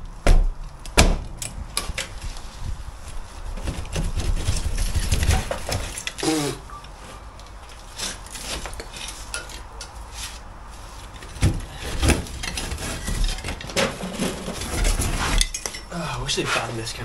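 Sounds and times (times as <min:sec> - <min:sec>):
debris scraping and rustling: 0:01.4 - 0:17.0
concrete fragments clinking: 0:08.8 - 0:10.0, 0:11.9 - 0:16.0.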